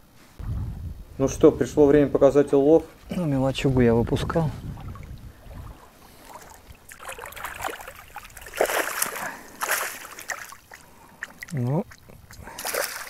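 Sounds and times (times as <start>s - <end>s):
water splashing and sloshing: 3.6s - 13.0s.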